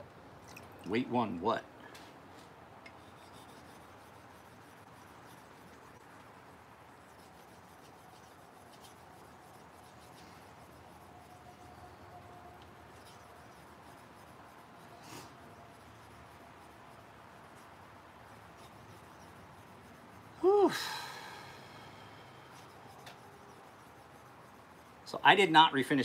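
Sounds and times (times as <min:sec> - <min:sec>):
sigh-like voiced sound: 0:20.4 - 0:21.3.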